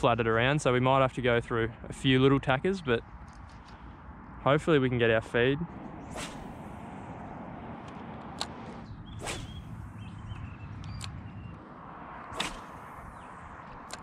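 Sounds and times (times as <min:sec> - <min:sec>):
steady low rumble: 0:00.0 - 0:14.0
fishing rod swishing through air: 0:06.0 - 0:07.0, 0:08.4 - 0:09.8, 0:12.3 - 0:13.3.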